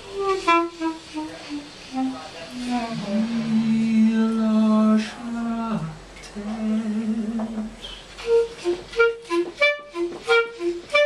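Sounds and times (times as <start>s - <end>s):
violin and clarinet duet: 0.0s - 3.9s, 8.2s - 11.0s.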